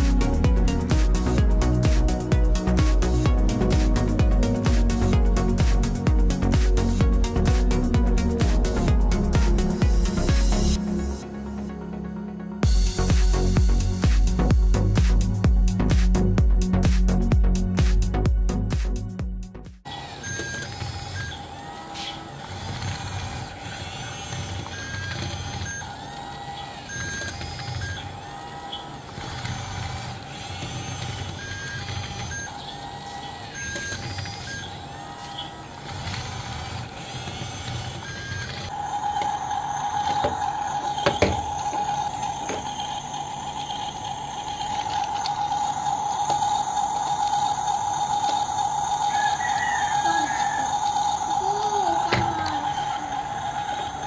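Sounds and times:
toy bulldozer motors humming: 0:19.8 - 0:54.0
electronic beeping: 0:19.9 - 0:54.0
steady high electronic tone: 0:37.5 - 0:54.0.

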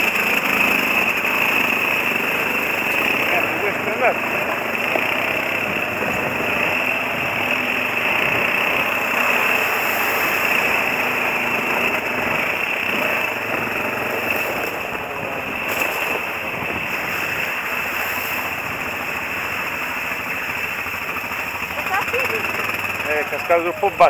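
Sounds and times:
quad bike engine running: 0:00.0 - 0:24.0.

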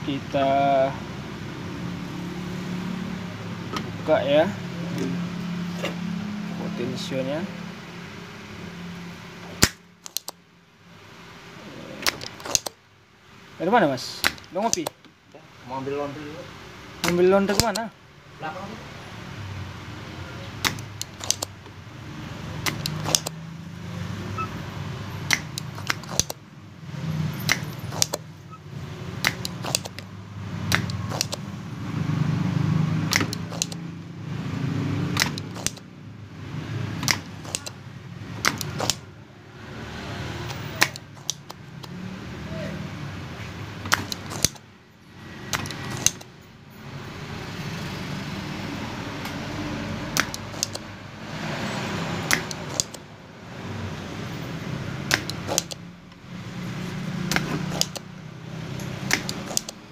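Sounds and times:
tool clicks and taps: 0:09.5 - 0:10.4, 0:12.0 - 0:12.8, 0:14.2 - 0:15.2, 0:17.0 - 0:17.9, 0:20.6 - 0:21.8, 0:22.6 - 0:23.4, 0:25.3 - 0:26.4, 0:27.4 - 0:28.2, 0:29.2 - 0:30.1, 0:30.7 - 0:31.4, 0:33.1 - 0:33.9, 0:35.1 - 0:35.9, 0:37.0 - 0:37.8, 0:38.4 - 0:39.1, 0:40.4 - 0:42.0, 0:43.8 - 0:44.7, 0:45.5 - 0:46.4, 0:50.2 - 0:50.9, 0:52.3 - 0:53.0, 0:55.0 - 0:56.2, 0:57.2 - 0:58.1, 0:58.7 - 0:59.8.

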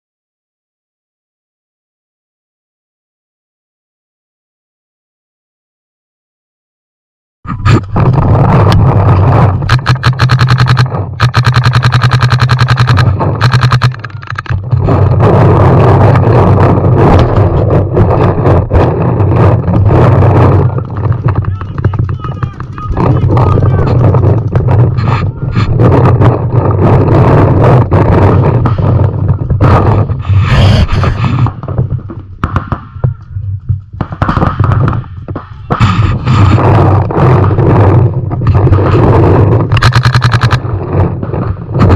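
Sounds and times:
steady low rumble: 0:07.5 - 0:41.9
paintball marker firing: 0:08.6 - 0:14.6, 0:19.4 - 0:26.0, 0:32.4 - 0:37.8, 0:38.4 - 0:41.9.

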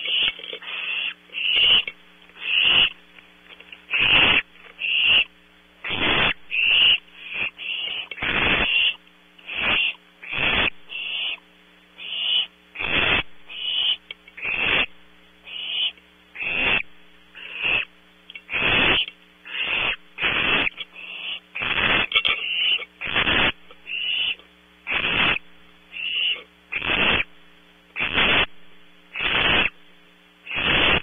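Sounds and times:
owlets hissing: 0:00.0 - 0:03.0, 0:03.9 - 0:11.4, 0:12.0 - 0:14.9, 0:18.5 - 0:27.3, 0:28.0 - 0:28.5, 0:29.2 - 0:29.8, 0:30.5 - 0:31.0
faint electrical hum: 0:00.0 - 0:31.0.

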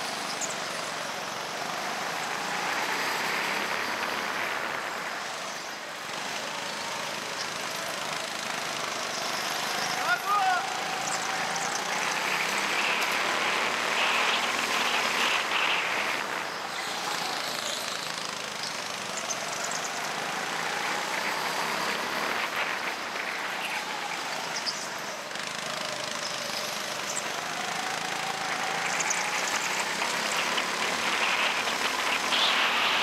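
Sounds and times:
go-kart engine running: 0:00.0 - 0:33.0
steady rushing noise: 0:00.0 - 0:33.0.

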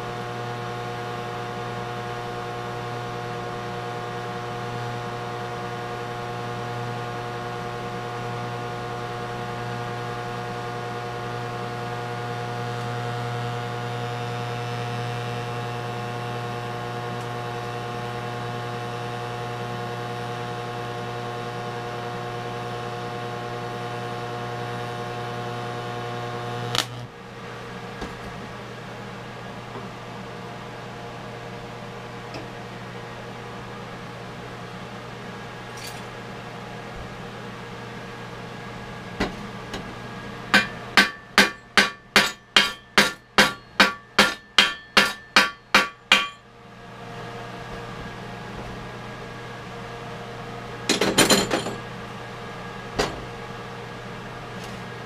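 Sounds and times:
welder humming: 0:00.0 - 0:55.0
hammer striking steel: 0:40.5 - 0:46.4.

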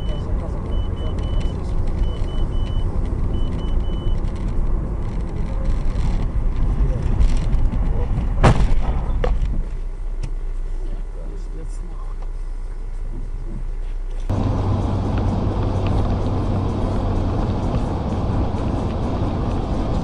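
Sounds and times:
short high beeps: 0:00.0 - 0:04.2
car road and engine rumble: 0:00.0 - 0:20.0
sharp bang: 0:08.4 - 0:09.4.

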